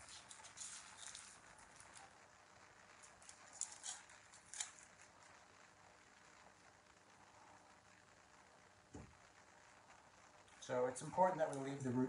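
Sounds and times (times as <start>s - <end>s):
onion skin crackling being peeled: 0.0s - 2.2s, 3.0s - 5.5s.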